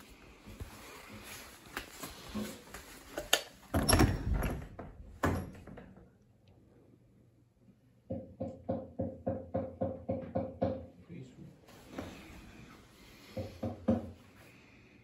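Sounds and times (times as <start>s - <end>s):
footsteps: 0.0s - 3.3s
door opening knocks and thuds: 3.7s - 6.0s.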